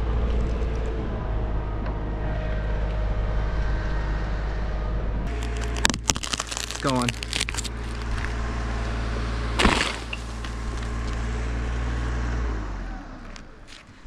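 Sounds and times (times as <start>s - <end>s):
heavy thud of tree top: 9.6s - 11.0s.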